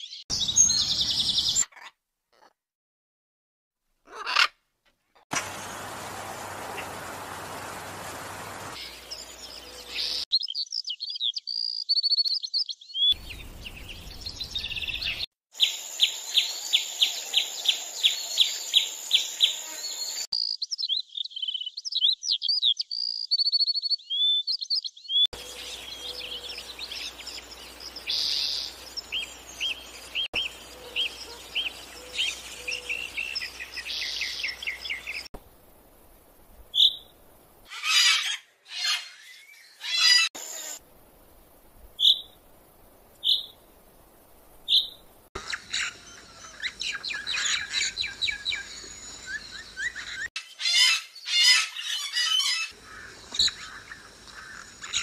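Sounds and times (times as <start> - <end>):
songbirds chirping and twittering: 0.0 - 1.9, 5.3 - 40.8, 41.6 - 55.0
repeated bird call notes: 43.2 - 43.6, 44.7 - 55.0.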